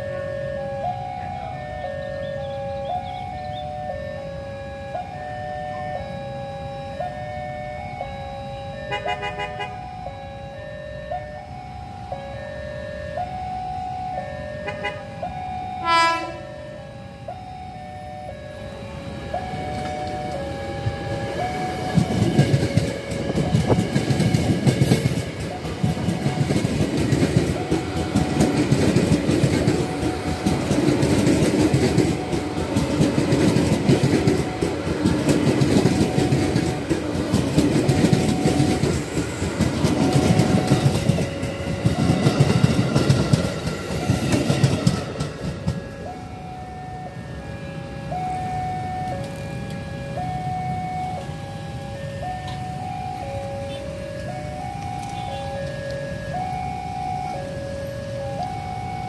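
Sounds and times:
crossing alarm alternating tones: 0.0s - 59.0s
train hum: 11.4s - 59.0s
train wheels clattering: 21.5s - 46.0s.

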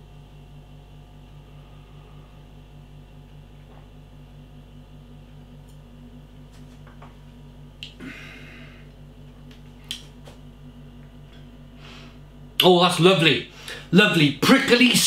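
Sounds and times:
steady low hum: 0.0s - 15.0s
breathy exhale: 1.5s - 2.5s, 8.0s - 8.9s, 11.8s - 12.2s.

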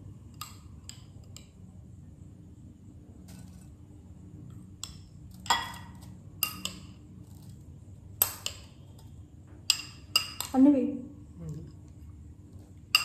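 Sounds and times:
spoon clinking against bowl: 4.8s - 7.0s, 9.6s - 10.6s.

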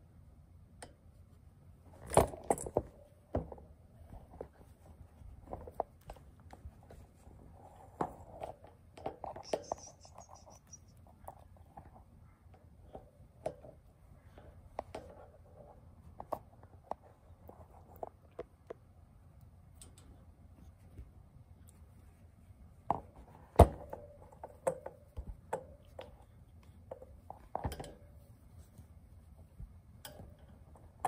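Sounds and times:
kitten paws scratching and rustling: 4.0s - 12.2s.

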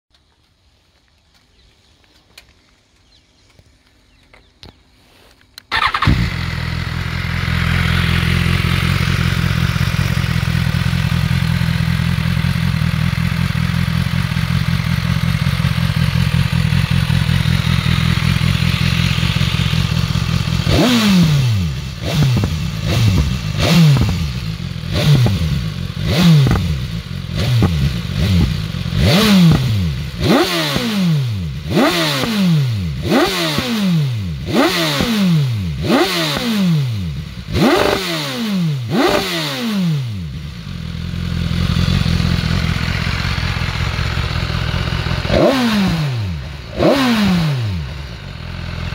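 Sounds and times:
motorcycle engine idling and revving: 2.4s - 48.9s.

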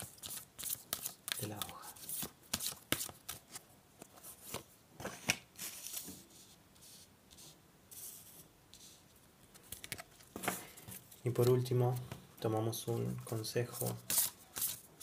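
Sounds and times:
cards being shuffled: 0.0s - 6.2s, 13.2s - 14.9s.

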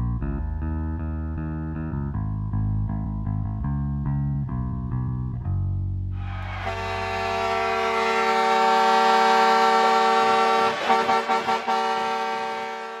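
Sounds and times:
goal horn blast: 6.2s - 13.0s.

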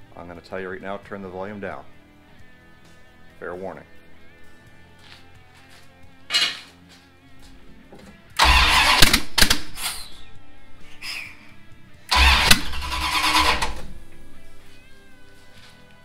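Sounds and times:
engine cranking and firing: 8.4s - 10.0s, 12.1s - 14.1s.

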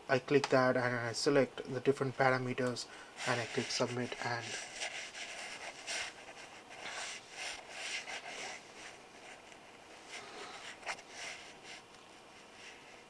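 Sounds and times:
rustling and rubbing on microphone: 3.2s - 13.0s.

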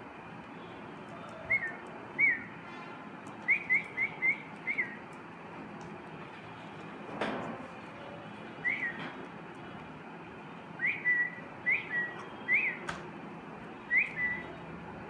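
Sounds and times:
short clear whistles: 1.2s - 5.0s, 8.6s - 9.0s, 10.8s - 12.9s, 13.9s - 14.6s.

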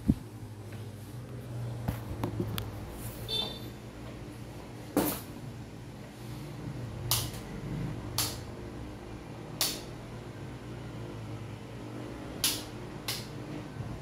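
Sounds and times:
electric fan humming: 0.0s - 14.0s.

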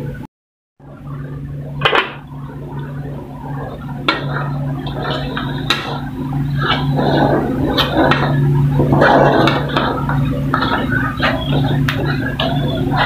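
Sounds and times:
broth bubbling in a wok: 0.8s - 13.0s
wooden spatula scraping pan: 3.7s - 13.0s.

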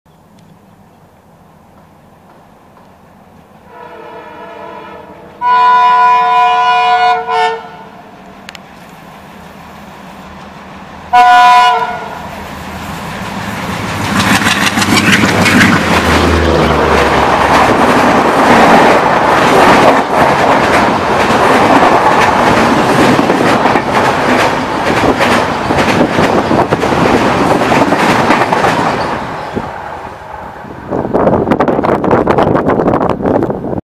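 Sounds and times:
locomotive horn blasts: 3.7s - 8.0s, 11.1s - 12.2s
train wheel clatter: 12.7s - 29.7s.

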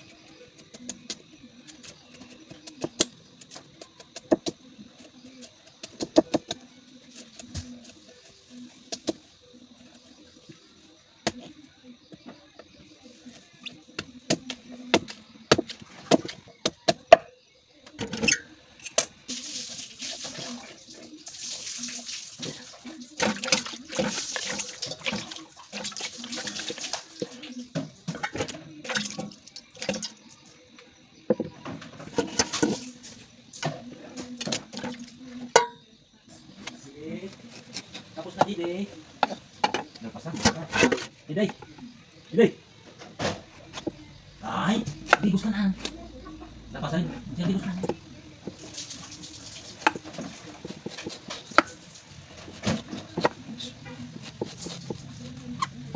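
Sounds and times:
knife cutting bamboo shoot: 49.7s - 55.7s.

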